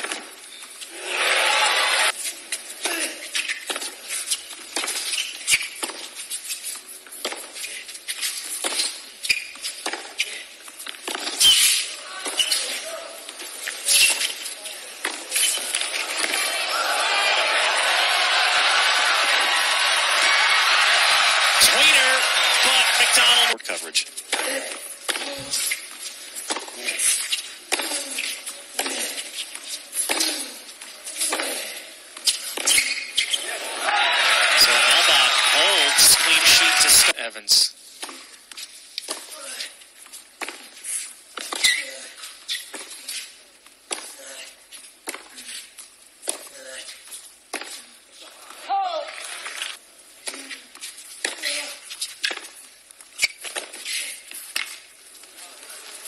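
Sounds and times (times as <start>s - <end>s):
shoes squeaking on court: 0.0s - 1.0s, 2.1s - 16.5s, 24.1s - 33.6s, 37.9s - 48.0s, 49.1s - 56.0s.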